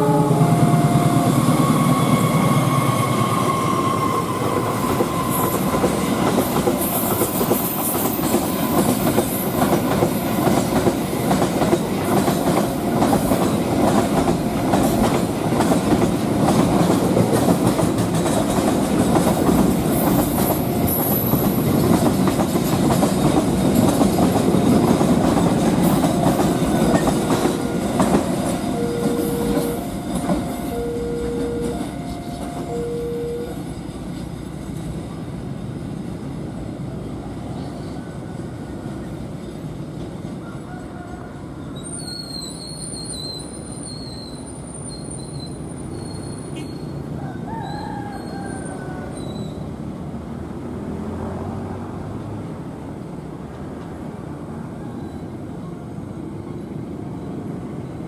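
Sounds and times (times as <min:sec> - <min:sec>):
two-note tone: 0:00.0 - 0:03.0, 0:28.6 - 0:33.7
train wheels clattering over rail joints: 0:04.9 - 0:30.6.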